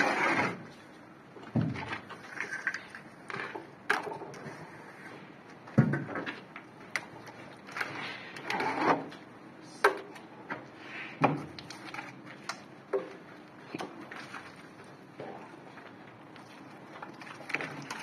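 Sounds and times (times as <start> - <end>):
trowel scraping wet plaster: 0.0 - 0.7.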